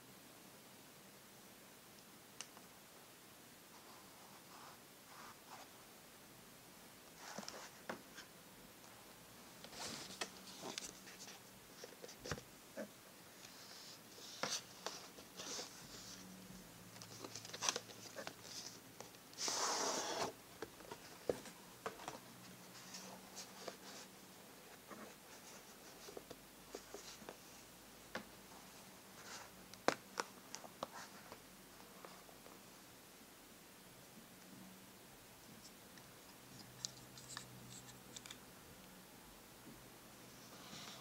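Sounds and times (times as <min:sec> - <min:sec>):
paper and card rustling: 0:17.0 - 0:24.1.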